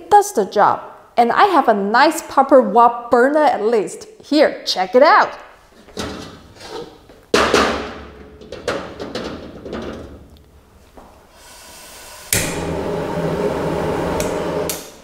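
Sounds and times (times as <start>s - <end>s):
gas hissing: 11.3s - 15.0s
gas flame whoosh and roar: 11.8s - 15.0s
burner ignition click: 12.3s - 13.2s, 14.0s - 15.0s.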